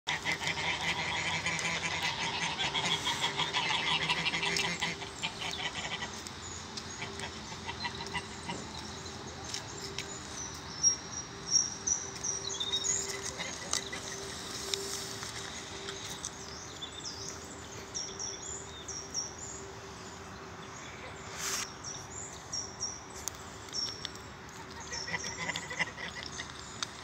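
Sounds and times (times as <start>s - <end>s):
geese calling: 0.1s - 10.1s, 12.5s - 16.4s, 24.5s - 26.6s
small bird singing: 4.5s - 27.0s.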